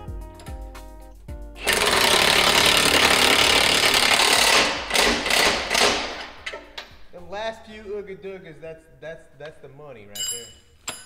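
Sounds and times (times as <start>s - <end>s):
impact wrench tightening bolt: 1.6s - 6.9s.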